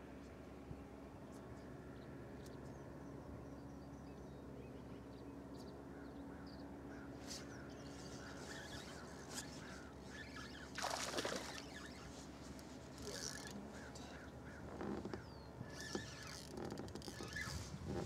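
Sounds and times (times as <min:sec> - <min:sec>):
fish splash on water surface: 0:10.8 - 0:11.6.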